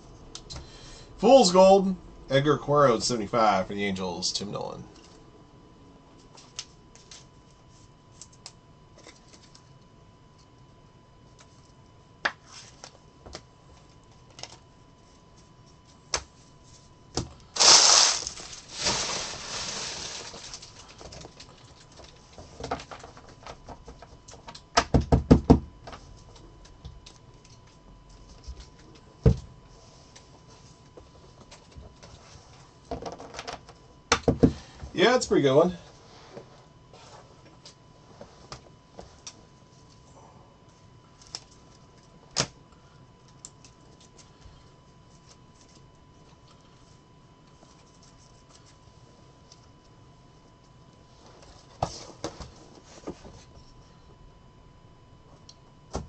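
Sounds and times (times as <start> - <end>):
pack wrapper rustling: 17.6 - 21.6.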